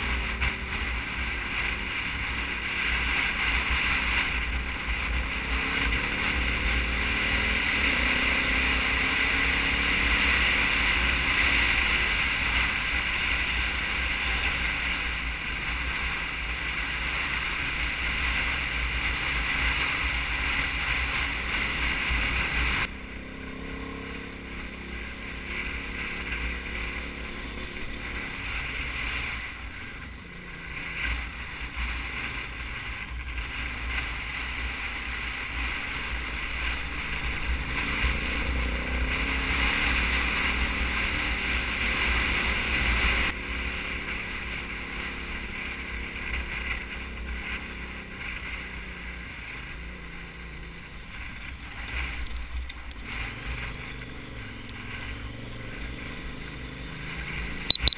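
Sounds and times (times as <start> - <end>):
motorcycle engine: 0.0 - 57.9.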